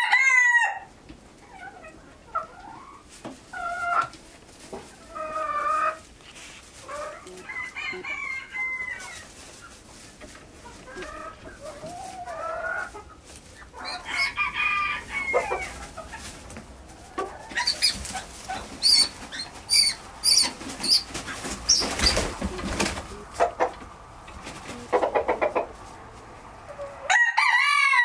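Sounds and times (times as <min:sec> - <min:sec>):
rooster calling and clucking: 0:00.0 - 0:04.2, 0:05.0 - 0:28.0
loud rustling: 0:13.2 - 0:23.4.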